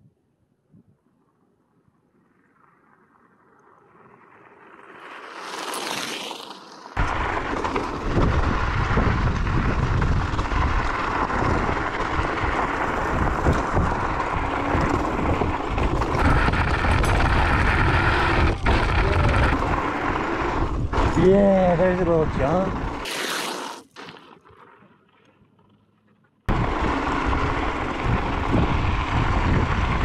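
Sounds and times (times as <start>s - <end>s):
wind buffeting microphone: 7.0s - 23.1s, 26.5s - 30.0s.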